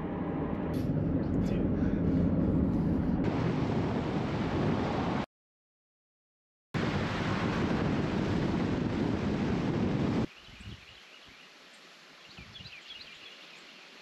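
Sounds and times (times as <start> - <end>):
wind buffeting microphone: 0.8 - 5.2, 6.8 - 10.9, 12.4 - 12.8.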